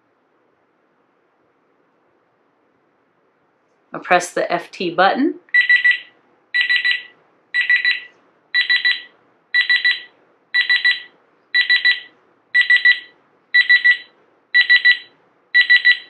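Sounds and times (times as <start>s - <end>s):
thermometer high beeps: 5.5s - 16.0s.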